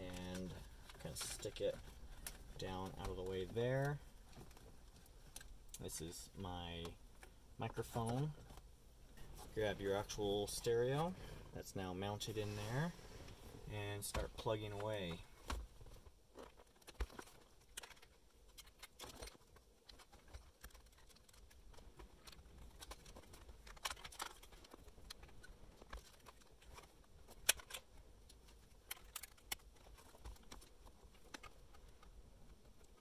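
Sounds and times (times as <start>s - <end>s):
plastic plugs clicking and rustling: 14.0s - 33.0s.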